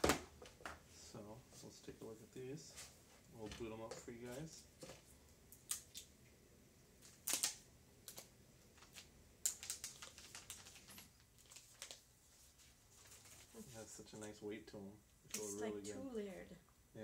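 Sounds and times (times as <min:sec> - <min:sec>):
packaging crinkling: 0:07.0 - 0:12.0.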